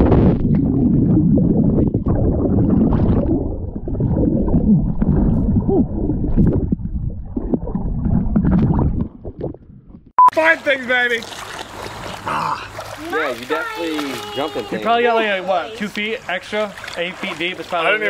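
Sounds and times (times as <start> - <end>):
gurgling bubble tones: 0.0 - 10.1
underwater air bubbles churning: 0.0 - 10.1.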